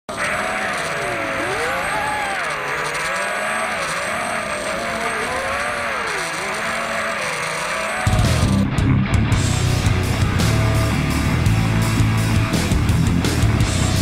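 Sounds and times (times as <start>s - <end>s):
quadcopter motors whining: 0.1s - 8.6s.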